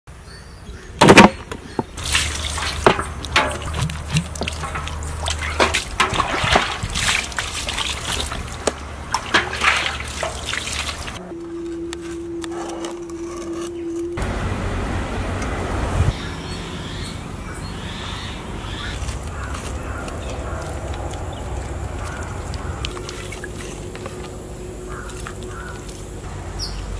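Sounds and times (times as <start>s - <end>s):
water splashing on metal: 2.0s - 11.2s, 18.8s - 26.2s.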